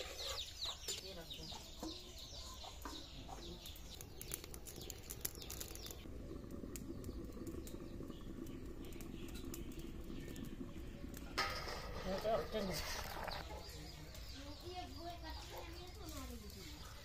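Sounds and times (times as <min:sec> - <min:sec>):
birds chirping: 0:00.0 - 0:17.0
wood fire crackling: 0:00.0 - 0:17.0
sharp snaps of fire: 0:03.7 - 0:07.8.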